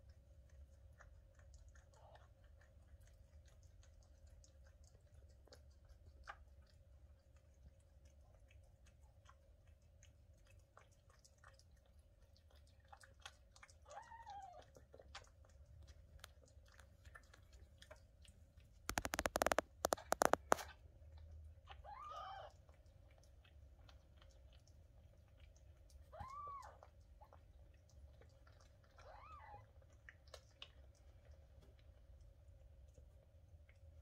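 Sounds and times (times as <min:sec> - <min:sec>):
cat licking kittens: 0:00.0 - 0:34.0.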